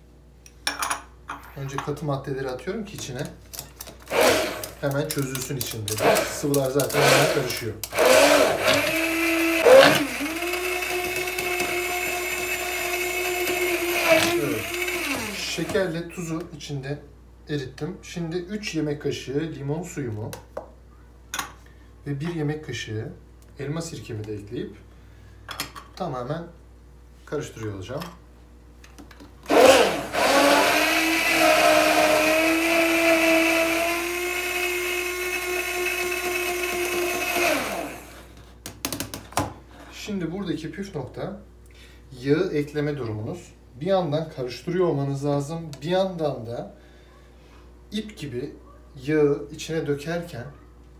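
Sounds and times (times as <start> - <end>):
immersion blender whining: 4.0 - 4.9, 5.9 - 15.9, 29.5 - 38.3.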